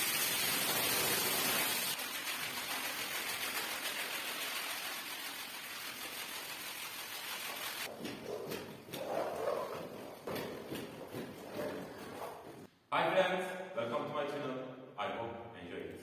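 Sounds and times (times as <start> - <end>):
hose water splashing on rug: 0.0 - 8.2.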